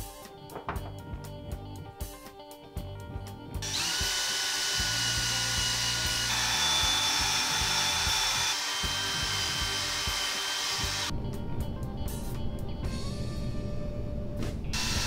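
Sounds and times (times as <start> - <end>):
background music: 0.0 - 15.0
cordless drill whining: 3.6 - 11.1, 14.8 - 15.0.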